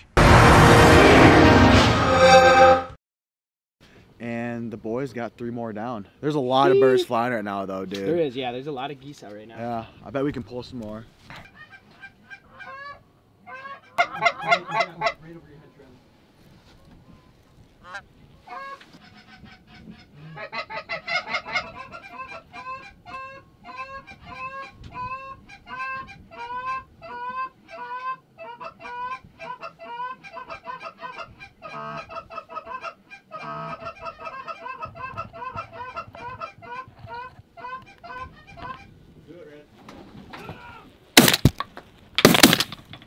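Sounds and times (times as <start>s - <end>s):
geese honking: 11.5s - 15.3s, 17.8s - 38.9s.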